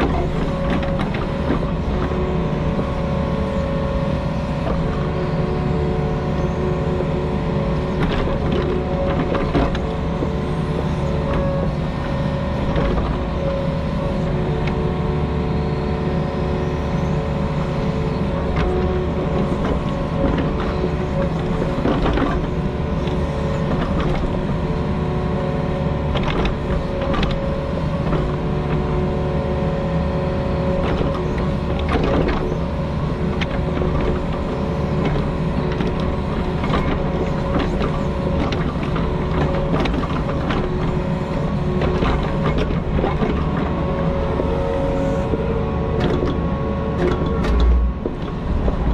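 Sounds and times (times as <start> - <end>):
diesel engine running: 0.0 - 48.9.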